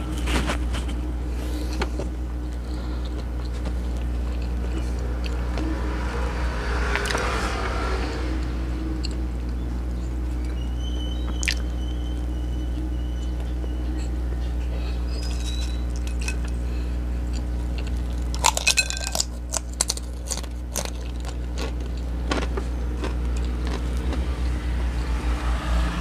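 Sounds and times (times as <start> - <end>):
person chewing: 0.0 - 5.6, 9.0 - 9.6, 11.3 - 11.6, 13.3 - 24.6
low hum: 0.0 - 26.0.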